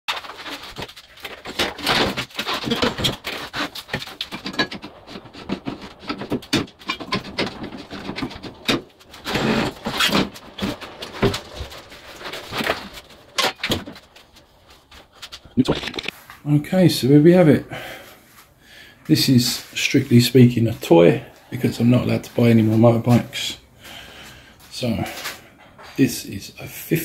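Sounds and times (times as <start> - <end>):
knocks and rattles on metal lift: 0.1 - 14.2.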